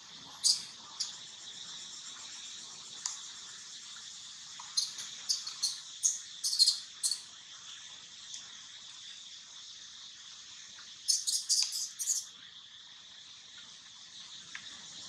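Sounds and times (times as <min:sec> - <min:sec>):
insects droning: 0:00.0 - 0:15.0
sharp bird chirps: 0:00.4 - 0:01.2, 0:04.7 - 0:07.3, 0:11.1 - 0:12.3.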